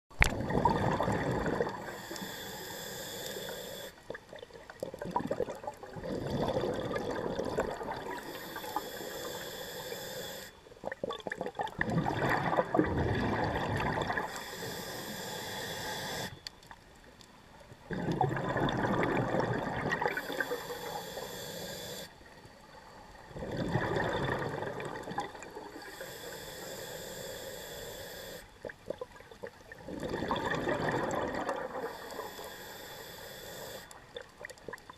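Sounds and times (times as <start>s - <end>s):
hissing regulator inhale: 1.8s - 4.0s, 8.1s - 10.7s, 14.2s - 16.5s, 20.1s - 22.3s, 25.7s - 28.6s, 31.7s - 34.0s.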